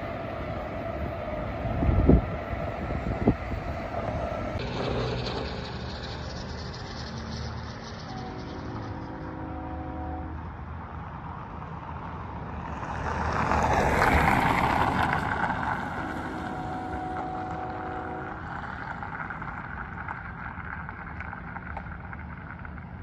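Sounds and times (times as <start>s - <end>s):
distant train horn: 8.0s - 10.6s, 15.1s - 18.8s
car driving past: 12.0s - 20.2s.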